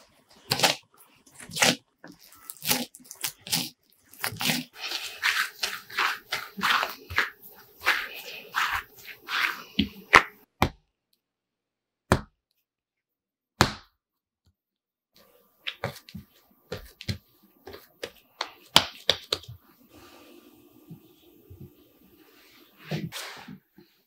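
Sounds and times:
dough taps and squishing: 9.8s - 10.8s, 12.1s - 12.4s, 13.6s - 14.0s, 15.6s - 19.6s
dough slapped on countertop: 12.1s - 12.3s, 13.6s - 14.0s, 18.4s - 19.5s.

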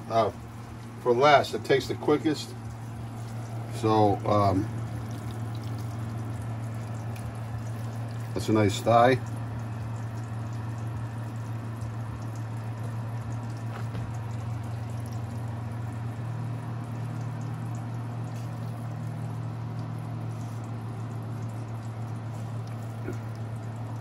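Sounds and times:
steady low hum: 0.0s - 24.0s
fat popping: 13.6s - 14.5s.

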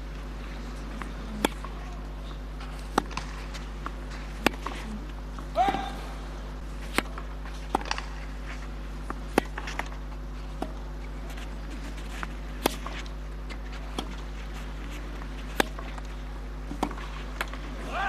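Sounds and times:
low broadcast hum: 0.0s - 18.0s
racket striking tennis ball: 1.0s - 1.9s, 2.6s - 6.0s, 6.8s - 8.3s, 9.0s - 10.9s, 11.8s - 13.1s, 15.2s - 17.7s.

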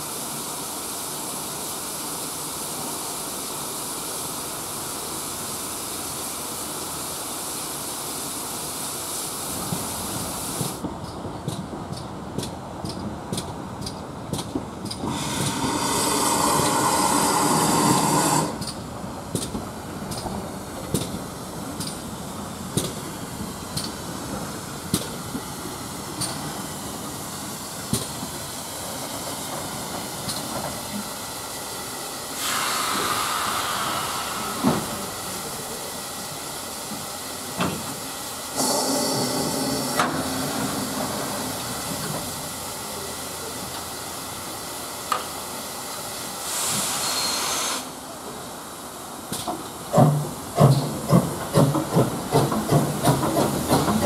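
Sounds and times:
steam hissing: 0.0s - 10.8s, 14.9s - 54.0s
train wheels clicking over rail joints: 9.6s - 44.4s, 49.2s - 54.0s.

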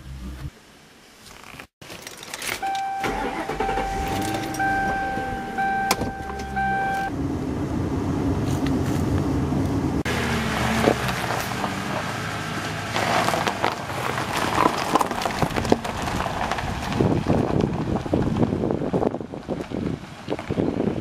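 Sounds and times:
car engine cranking and running: 1.8s - 18.0s
car warning chime: 2.6s - 7.1s.

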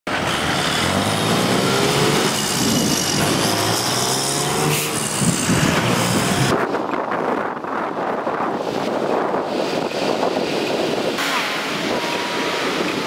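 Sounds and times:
vehicle engines passing: 0.1s - 7.4s
road noise hiss: 0.1s - 13.0s.

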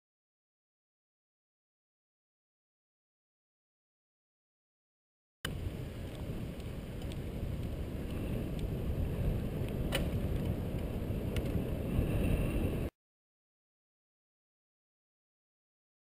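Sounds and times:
wind buffeting microphone: 5.5s - 12.9s.

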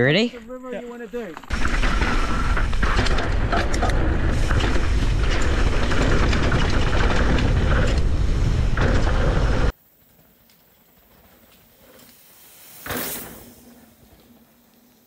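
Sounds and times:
tyre noise on dirt: 0.0s - 15.0s
bike rattles and clicks: 0.4s - 12.3s
wind rumble on microphone: 1.5s - 9.7s.

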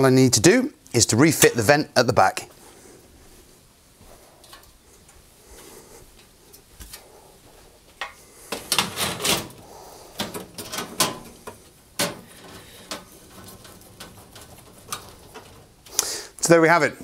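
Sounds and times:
metal grille clanking and scraping: 10.2s - 15.9s.

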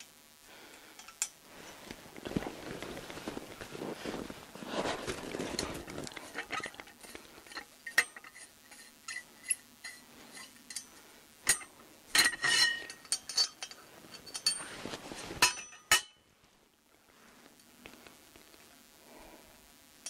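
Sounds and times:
metal hardware clinking: 5.6s - 14.7s.

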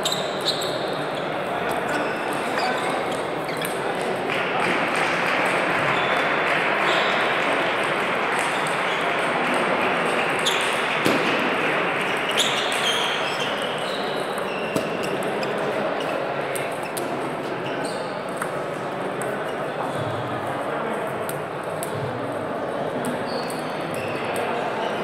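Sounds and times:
din of large hall with voices: 0.0s - 25.0s.

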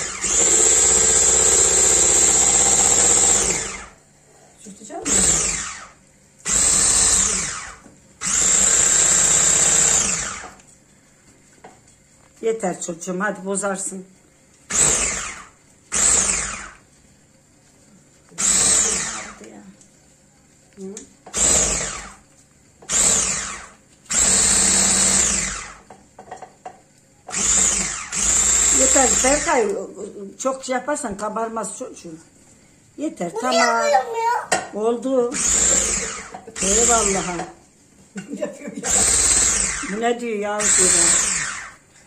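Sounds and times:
electric hand mixer whirring: 0.0s - 4.0s, 5.0s - 10.6s, 14.7s - 16.9s, 18.3s - 19.6s, 21.3s - 26.0s, 27.3s - 29.8s, 35.3s - 37.6s, 38.7s - 41.9s.

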